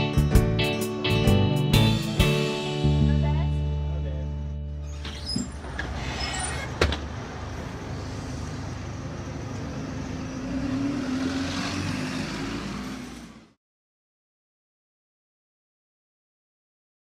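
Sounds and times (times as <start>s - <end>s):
bus engine running: 0.0s - 13.6s
street traffic: 1.8s - 13.6s.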